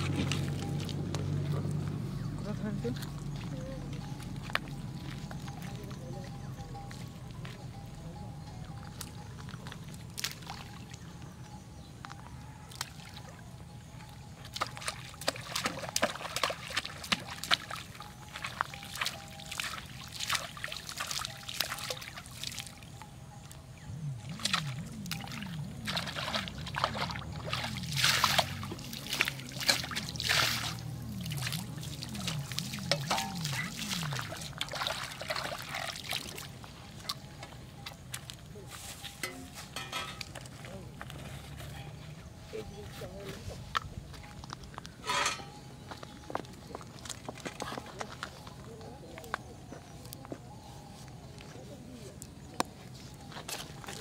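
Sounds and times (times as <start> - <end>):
water splashing onto pond: 0.0 - 8.0, 8.6 - 11.3, 12.1 - 41.1, 52.2 - 54.0.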